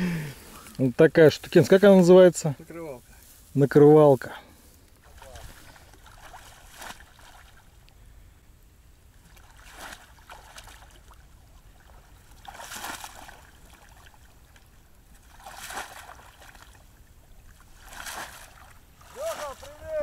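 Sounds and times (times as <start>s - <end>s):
wading through splashing water: 4.6s - 7.9s, 9.0s - 20.0s.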